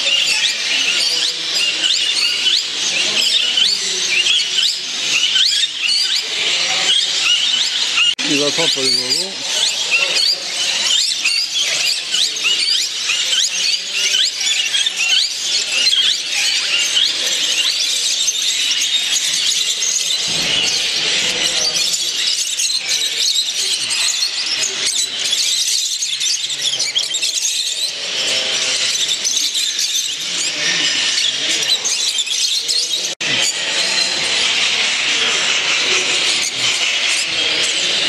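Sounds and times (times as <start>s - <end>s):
caged birds chirping: 0.0s - 38.0s.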